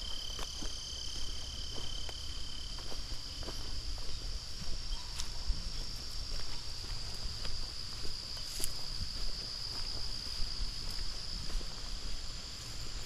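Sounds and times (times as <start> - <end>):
insects calling: 0.0 - 13.0.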